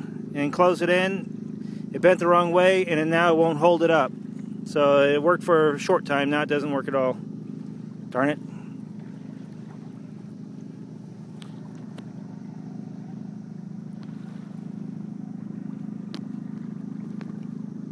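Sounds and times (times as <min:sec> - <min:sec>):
sailboat low drone: 0:00.0 - 0:17.9
faint ticks: 0:11.3 - 0:12.1, 0:16.0 - 0:17.6.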